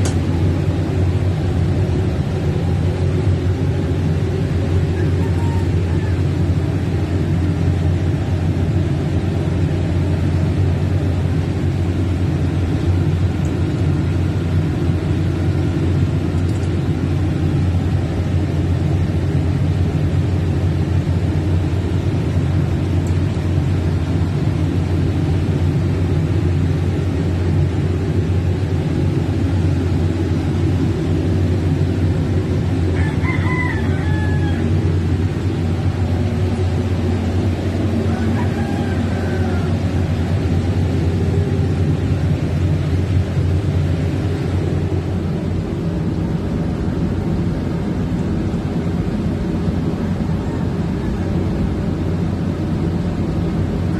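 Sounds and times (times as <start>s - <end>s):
diesel generator droning: 0.0s - 53.9s
rooster crowing: 4.8s - 6.4s, 32.8s - 35.2s, 37.8s - 40.6s.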